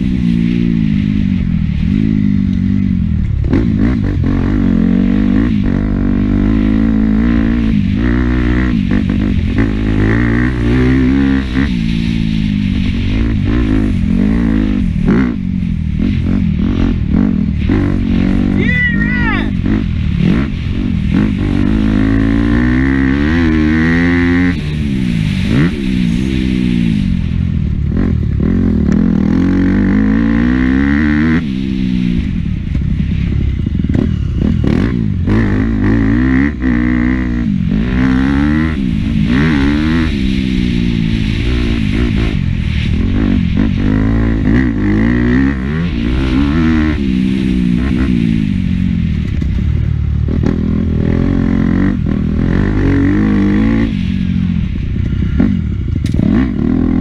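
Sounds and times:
motocross engine revving: 0.0 - 32.3, 33.8 - 49.6, 50.2 - 57.0.

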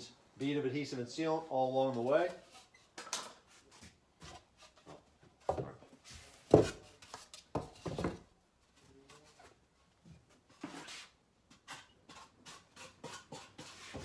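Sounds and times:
hollow knocks and rubbing of styrofoam: 3.8 - 8.3, 11.5 - 14.0.

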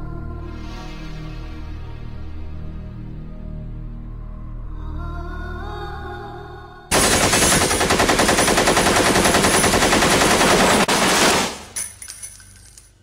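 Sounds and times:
soft music: 0.0 - 6.9.

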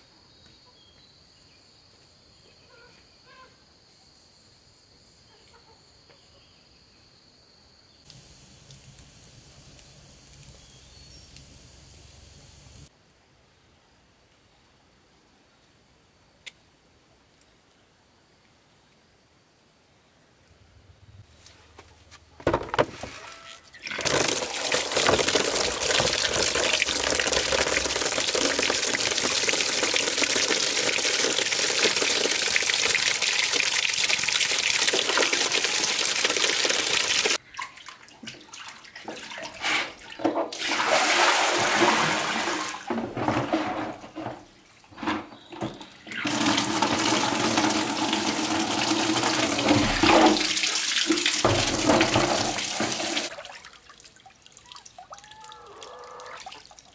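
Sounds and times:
water sloshing and splashing: 23.8 - 35.2, 37.2 - 55.1
tap water pouring into basin: 23.8 - 44.3, 46.1 - 55.2.

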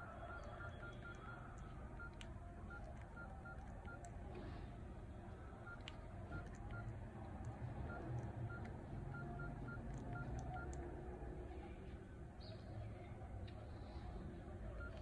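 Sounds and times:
phone keypad beeps: 0.0 - 4.1, 5.3 - 6.9, 7.8 - 10.8, 14.7 - 15.0.

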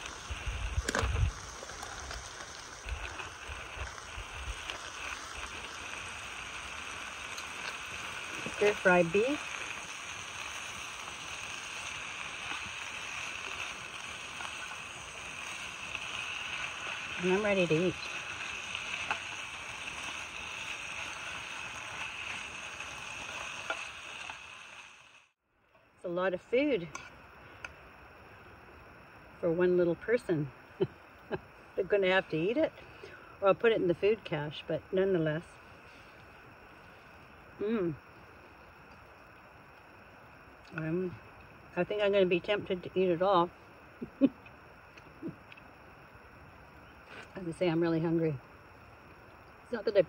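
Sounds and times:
wind buffeting microphone: 0.0 - 4.7
meat sizzling in a pan: 0.0 - 25.4
wind: 0.0 - 50.0.

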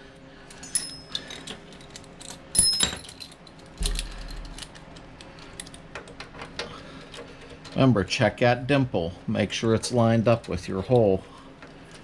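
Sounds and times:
metal hand tools clinking: 0.6 - 4.6.

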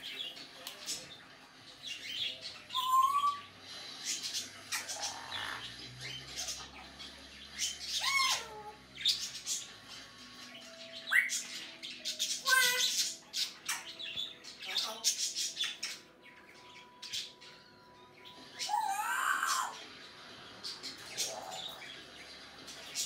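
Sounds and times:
parrot whistling: 2.7 - 3.5.

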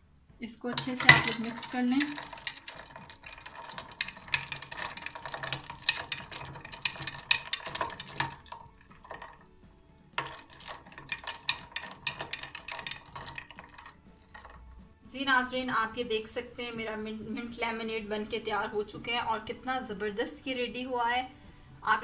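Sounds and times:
spoon clinking glass and ice: 0.8 - 9.5, 10.2 - 14.7.

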